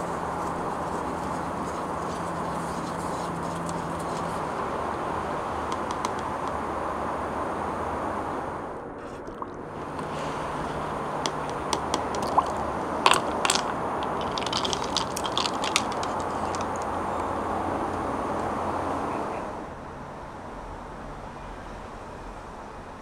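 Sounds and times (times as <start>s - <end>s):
low background rumble: 0.0s - 23.0s
ice cubes clinking in cup: 10.7s - 16.9s.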